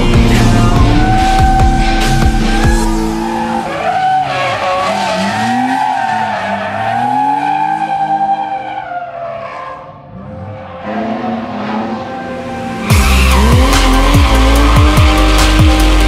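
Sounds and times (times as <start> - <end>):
car engine revving high: 0.0 - 8.4, 10.1 - 16.0
tyres squealing: 0.1 - 9.4.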